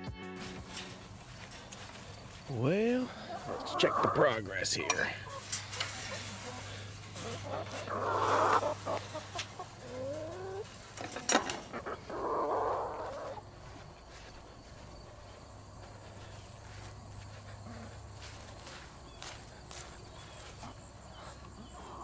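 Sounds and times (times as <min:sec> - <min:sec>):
hens calling: 0:00.5 - 0:22.0.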